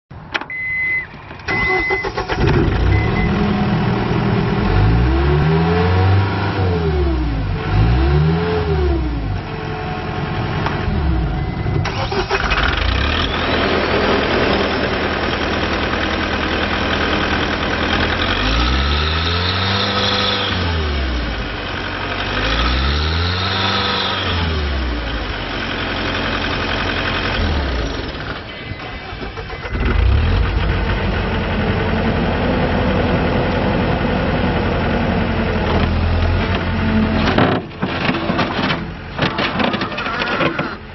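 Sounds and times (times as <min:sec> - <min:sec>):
short beep: 0:00.5 - 0:02.2, 0:02.8 - 0:03.4, 0:11.2 - 0:11.9, 0:28.5 - 0:30.1
diesel engine starting and revving: 0:01.4 - 0:40.9.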